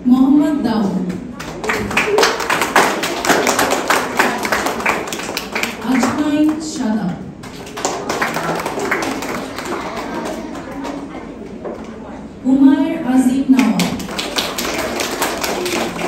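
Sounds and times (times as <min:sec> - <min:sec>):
audience clapping: 0:01.3 - 0:06.7, 0:07.4 - 0:11.2, 0:13.6 - 0:16.0.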